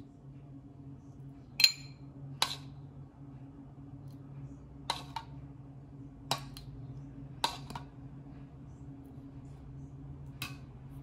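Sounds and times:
spoon clinking against glass: 1.6 - 2.0.

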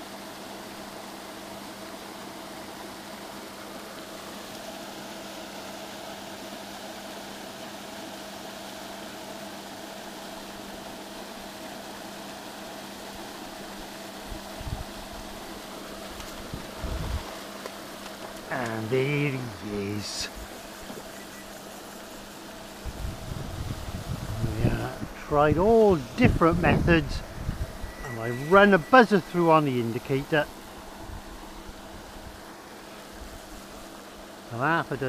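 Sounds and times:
lake aerator humming: 0.0 - 35.0.

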